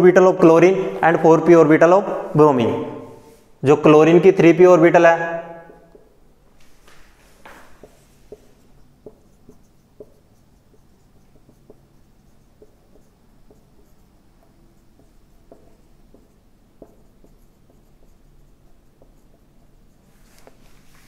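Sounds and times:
marker squeaking on whiteboard: 5.3s - 6.2s, 7.0s - 20.7s.

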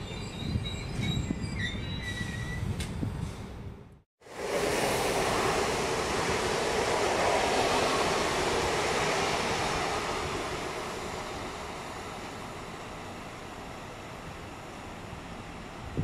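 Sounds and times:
electric train rumbling away: 4.2s - 16.0s.

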